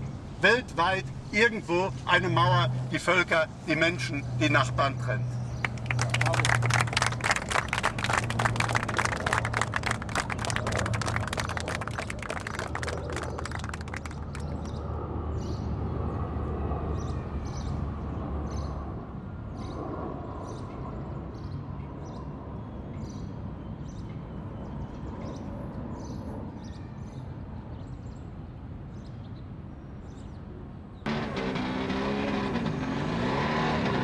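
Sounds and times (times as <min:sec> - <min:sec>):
vehicle engine revving: 0:31.1 - 0:34.0.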